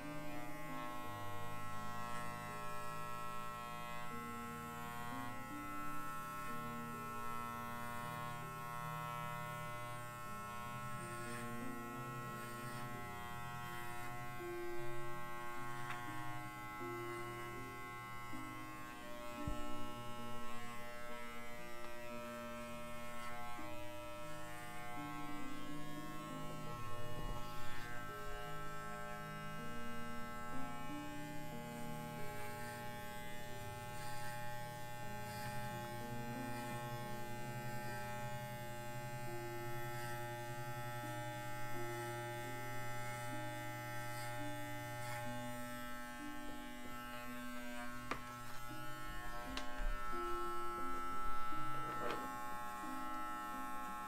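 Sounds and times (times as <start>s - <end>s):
electric clippers humming: 0.0s - 54.0s.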